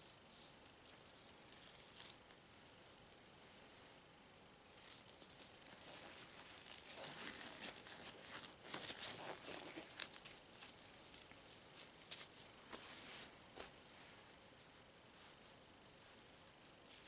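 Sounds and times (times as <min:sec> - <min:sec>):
gloves rustling and crinkling: 0:00.0 - 0:03.2, 0:04.7 - 0:13.8.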